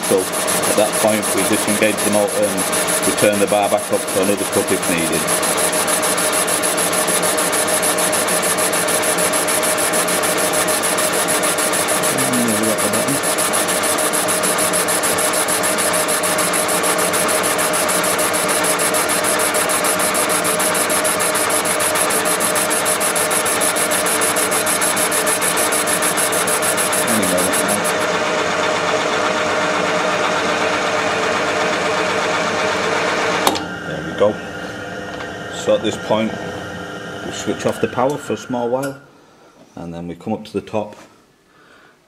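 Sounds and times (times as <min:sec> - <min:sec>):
boring machine whirring: 0:00.0 - 0:39.1
high machine whine: 0:00.0 - 0:39.2.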